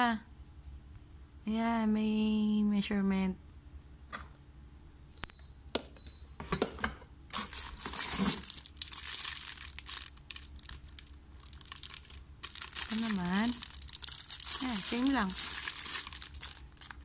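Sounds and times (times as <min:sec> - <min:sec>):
plastic wrapping crinkling: 0:07.3 - 0:17.0.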